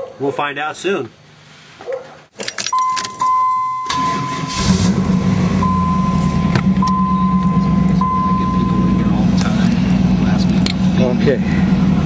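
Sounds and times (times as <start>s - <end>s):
keys jangling: 2.4s - 3.3s
electronic warning chime: 2.7s - 4.7s, 5.6s - 9.2s
car engine idling: 3.1s - 12.0s.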